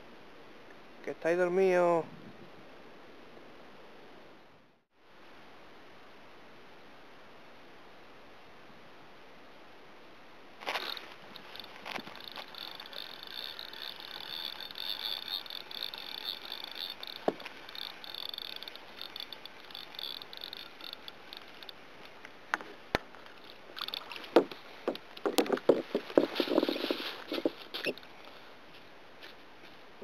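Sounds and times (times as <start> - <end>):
fishing reel whirring: 10.6 - 21.8, 23.2 - 28.1
tackle knocking and rattling: 10.6 - 21.8, 22.5 - 28.0
scattered clicks: 10.6 - 28.0.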